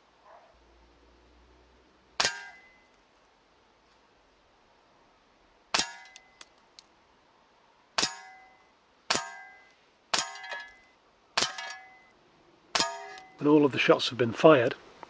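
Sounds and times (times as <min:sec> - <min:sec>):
pellets hitting metal trap: 0:02.2 - 0:02.7, 0:05.8 - 0:06.2, 0:08.0 - 0:08.5, 0:09.1 - 0:10.8, 0:11.4 - 0:12.0, 0:12.8 - 0:13.5.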